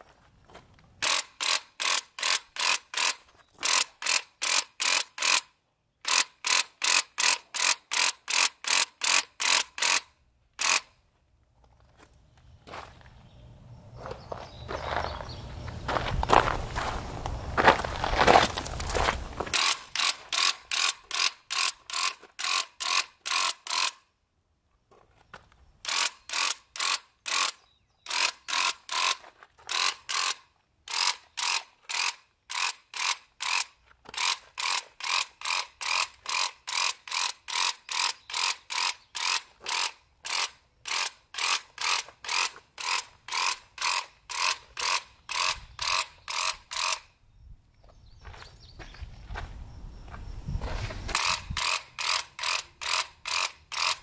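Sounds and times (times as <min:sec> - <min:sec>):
electric paint sprayer clattering: 0:19.4 - 0:24.0, 0:51.1 - 0:54.0.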